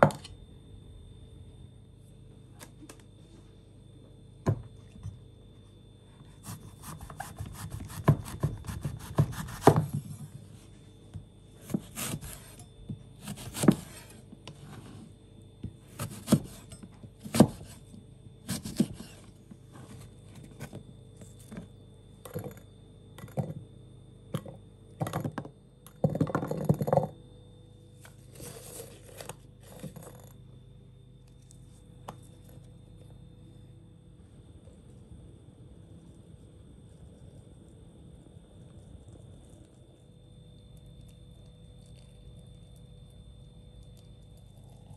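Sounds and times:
knife scraping crunch: 0:06.2 - 0:09.8, 0:11.6 - 0:14.2, 0:15.9 - 0:21.6, 0:28.1 - 0:30.2
knife cutting through fruit: 0:06.2 - 0:10.0, 0:11.6 - 0:14.2, 0:15.9 - 0:17.9, 0:18.5 - 0:19.3
knife chopping on wooden board: 0:06.4 - 0:10.0, 0:11.6 - 0:12.6, 0:16.0 - 0:17.8, 0:18.5 - 0:19.2.

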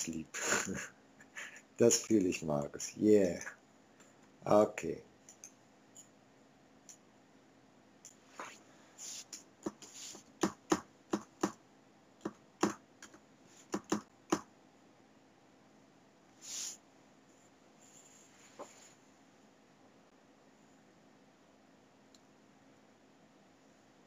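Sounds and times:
keyboard and mouse clicking: 0:12.2 - 0:14.5.

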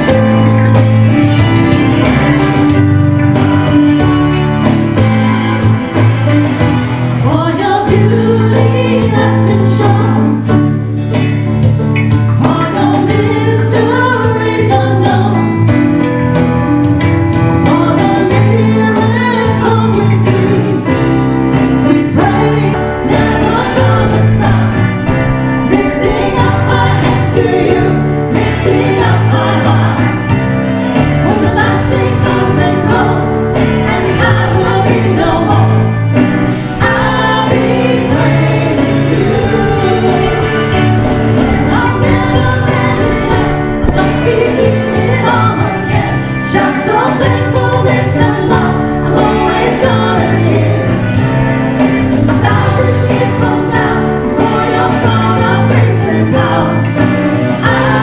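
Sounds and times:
acoustic guitar: 0:00.0 - 0:58.0
keyboard: 0:00.0 - 0:58.0
women singing gospel song: 0:07.3 - 0:10.4, 0:12.4 - 0:15.5, 0:17.6 - 0:20.9, 0:21.8 - 0:30.3, 0:31.0 - 0:36.0, 0:36.8 - 0:51.2, 0:51.8 - 0:58.0.

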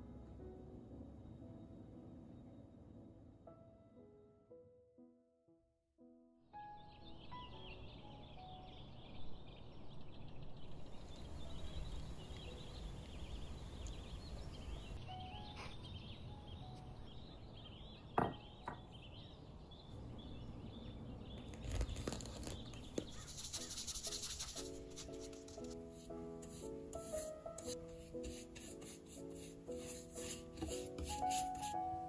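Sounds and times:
small birds chirping: 0:06.8 - 0:31.9.

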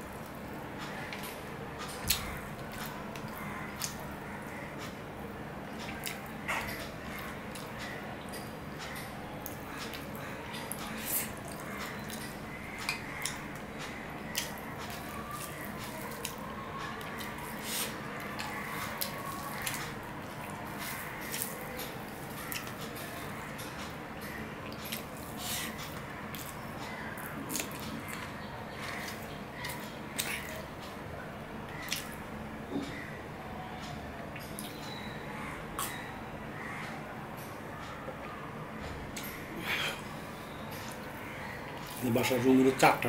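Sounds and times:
man chewing food: 0:00.0 - 0:05.0, 0:05.6 - 0:31.0, 0:31.7 - 0:33.0, 0:39.1 - 0:42.4
wet smacks and clicks: 0:31.8 - 0:32.2.

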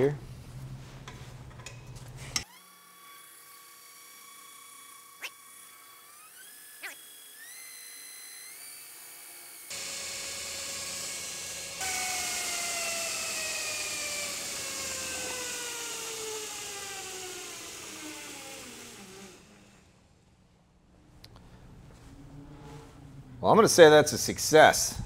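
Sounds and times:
belt grinder motor whine: 0:02.4 - 0:20.0.

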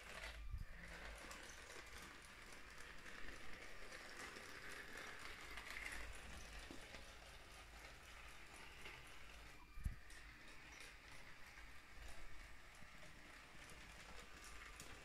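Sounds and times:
toy train wheels rattling: 0:00.0 - 0:15.0.

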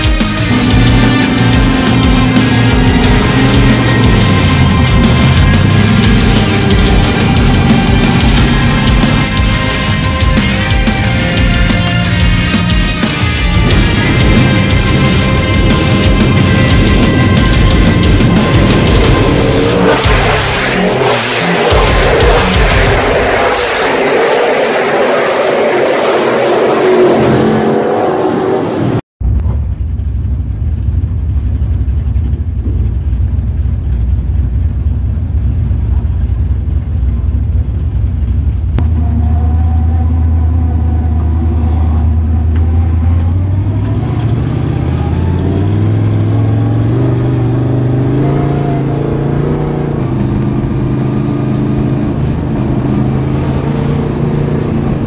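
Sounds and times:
race car engine accelerating: 0:00.0 - 0:55.0.

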